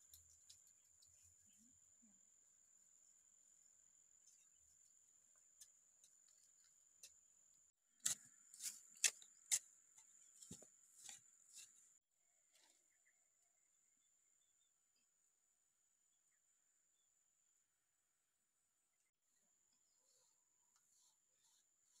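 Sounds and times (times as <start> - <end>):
metal blade chopping into dry soil: 8.0 - 9.7.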